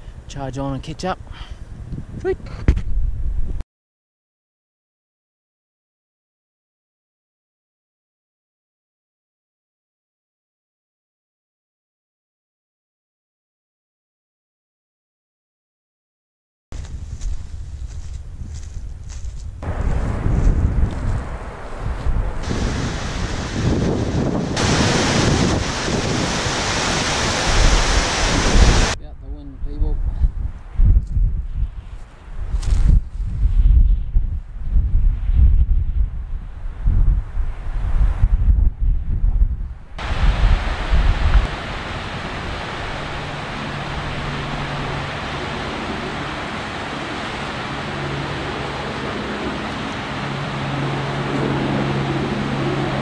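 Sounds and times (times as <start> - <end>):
wind buffeting microphone: 1.6 - 3.6, 16.8 - 53.0
loud steady rushing noise: 19.6 - 29.0, 40.0 - 53.0.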